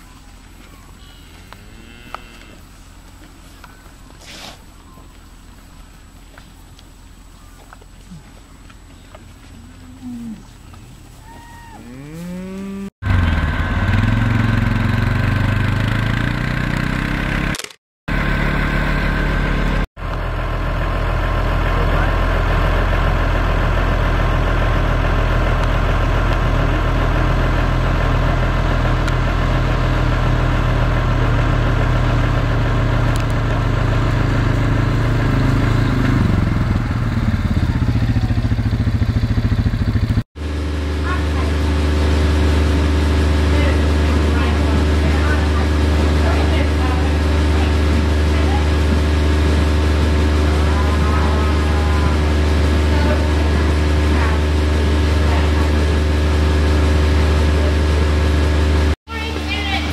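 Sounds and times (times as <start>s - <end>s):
cow mooing: 1.0s - 2.7s, 9.6s - 10.6s, 11.2s - 12.9s
quad bike engine running: 12.3s - 59.9s.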